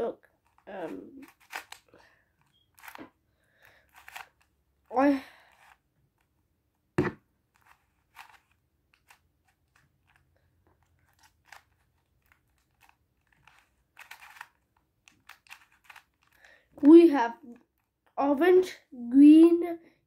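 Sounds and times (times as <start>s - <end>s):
boy vocal sound: 0.0s - 1.2s, 4.9s - 5.4s
puzzle cube clicking: 0.5s - 4.5s, 7.6s - 16.9s.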